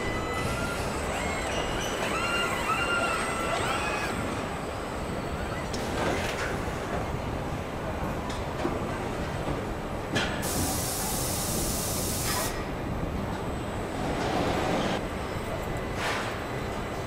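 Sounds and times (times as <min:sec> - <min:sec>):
sharp hiss of air: 0:10.4 - 0:12.6.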